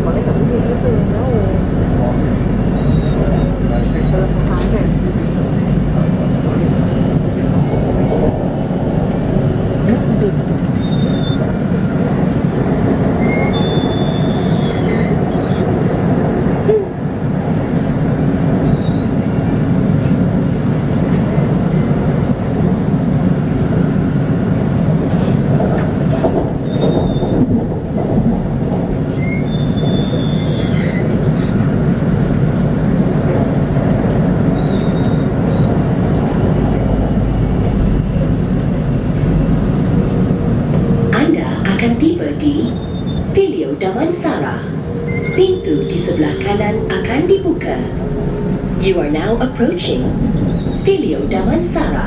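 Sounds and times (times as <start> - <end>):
train wheels rumbling: 0.0 - 52.0.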